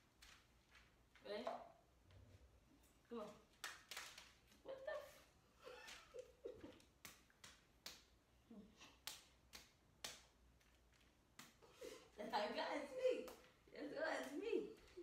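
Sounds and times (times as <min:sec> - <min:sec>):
hands slapping palms: 0:03.4 - 0:04.6, 0:05.8 - 0:12.2, 0:13.2 - 0:15.0.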